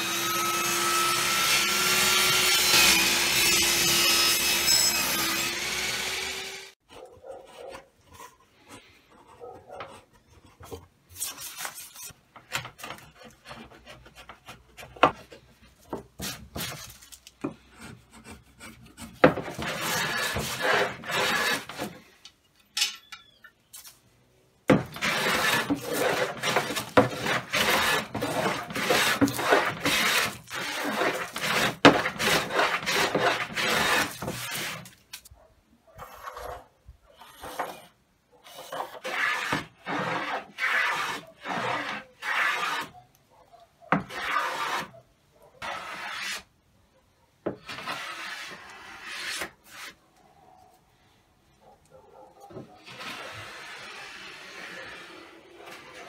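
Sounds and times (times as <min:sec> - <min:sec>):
hand plane shaving wood: 0:12.8 - 0:22.0, 0:24.7 - 0:35.0, 0:38.5 - 0:42.9, 0:44.0 - 0:45.0, 0:45.6 - 0:46.5, 0:47.6 - 0:50.0, 0:52.8 - 0:56.0.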